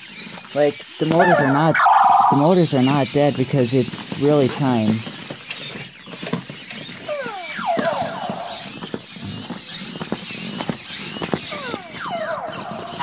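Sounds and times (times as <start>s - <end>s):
plastic feet clicking on floor: 0.0s - 13.0s
toy motors whirring: 0.0s - 13.0s
falling whining tones: 0.5s - 3.4s, 5.6s - 13.0s.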